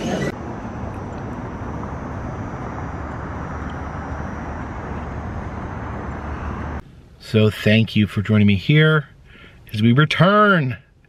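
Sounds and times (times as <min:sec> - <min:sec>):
outdoor street noise: 0:00.0 - 0:07.4.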